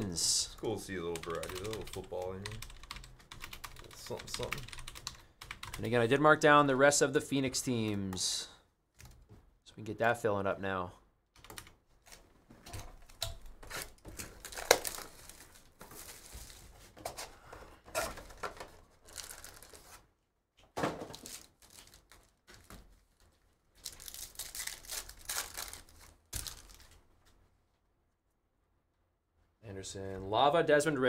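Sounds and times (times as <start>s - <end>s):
tearing and crinkling packaging: 13.6s - 16.7s, 18.1s - 20.0s, 21.1s - 22.7s, 23.8s - 27.0s.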